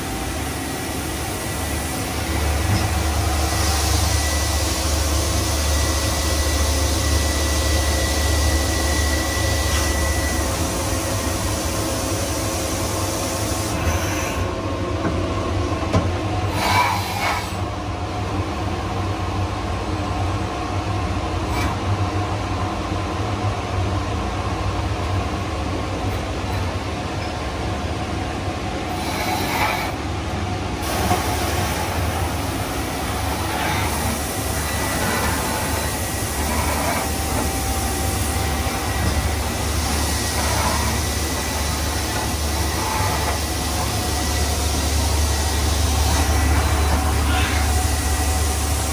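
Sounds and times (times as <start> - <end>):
coolant hissing: 30.8 - 48.9.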